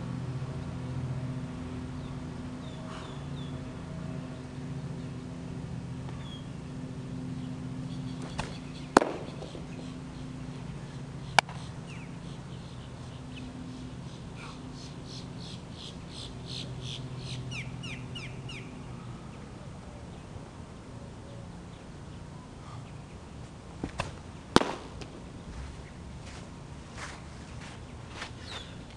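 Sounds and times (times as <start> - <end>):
steady low hum: 0.0 - 28.9
bird chirping rapidly: 7.8 - 18.7
baseballs cracking into target: 8.2 - 10.0, 11.3 - 11.6, 23.8 - 25.7.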